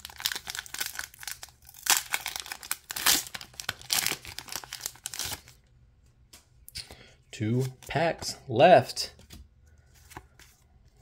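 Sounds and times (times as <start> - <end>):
foil wrapper tearing and crinkling: 0.0 - 5.5.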